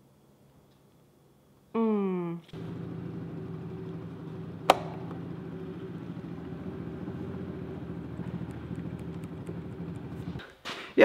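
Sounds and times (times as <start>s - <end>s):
low mechanical hum: 2.1s - 10.4s.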